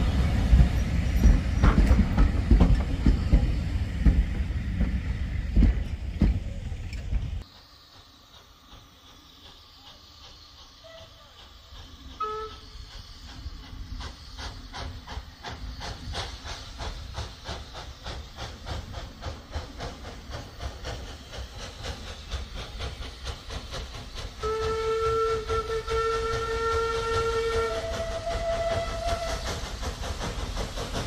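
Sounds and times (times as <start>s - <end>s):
steam locomotive exhaust beats: 0.0s - 31.0s
short whistle pip: 12.2s - 12.8s
steam whistle blast: 12.2s - 12.8s, 24.4s - 29.5s.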